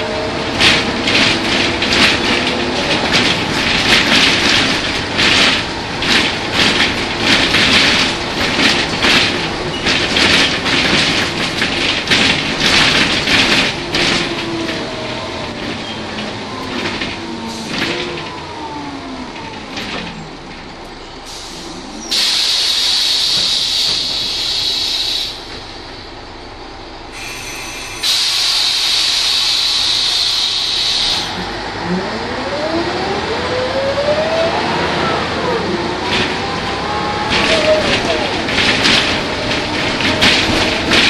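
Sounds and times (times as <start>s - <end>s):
bus drivetrain whine: 0.0s - 41.0s
compressed air hissing: 21.3s - 25.4s, 27.2s - 31.3s
diesel engine rising whine: 31.3s - 41.0s.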